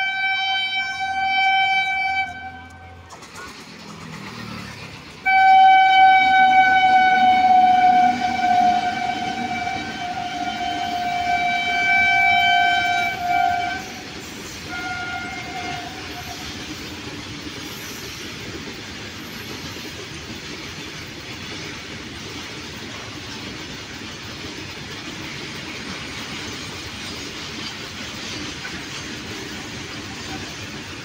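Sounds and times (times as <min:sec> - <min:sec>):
locomotive horn blasts: 0:00.0 - 0:03.0, 0:05.2 - 0:16.6
train rolling past: 0:00.0 - 0:31.0.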